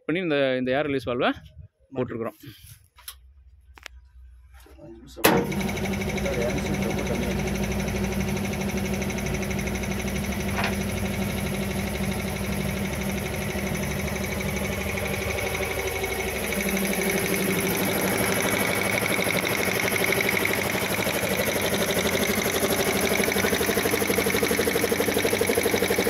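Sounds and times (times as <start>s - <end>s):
air compressor pulsing: 5.2s - 26.0s.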